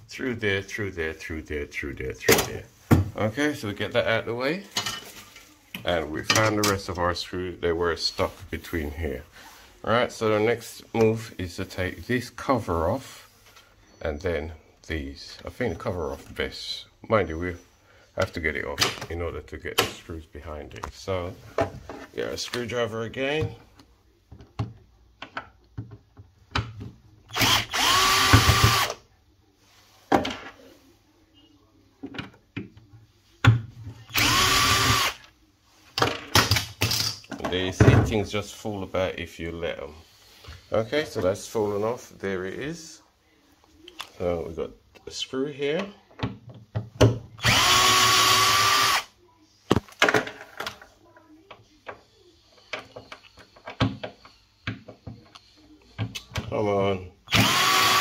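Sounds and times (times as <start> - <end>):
cordless drill motor whine: 27.3 - 29.0, 34.1 - 35.2, 47.4 - 49.1, 57.3 - 58.0.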